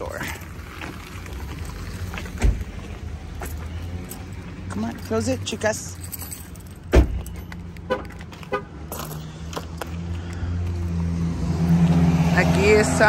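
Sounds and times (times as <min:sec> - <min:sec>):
vehicle engine humming: 0:00.0 - 0:13.0
car door slamming: 0:02.4 - 0:02.7, 0:06.9 - 0:07.3.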